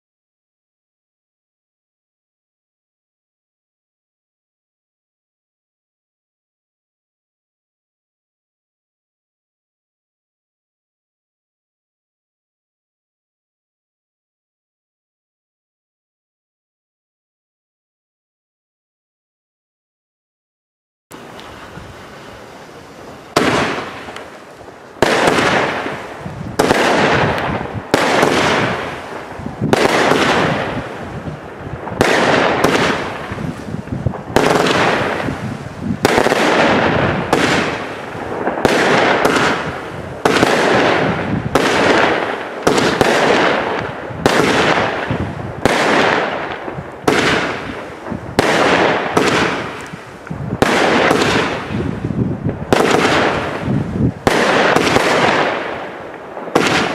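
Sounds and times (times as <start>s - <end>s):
firework battery bangs: 21.1s - 52.1s, 52.7s - 55.9s, 56.5s - 56.9s.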